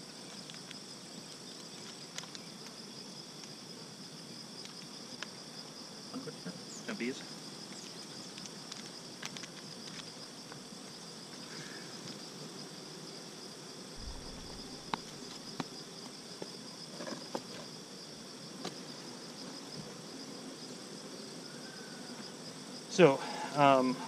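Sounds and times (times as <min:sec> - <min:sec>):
crickets chirring: 0:00.0 - 0:24.0
honey bees humming: 0:10.2 - 0:24.0.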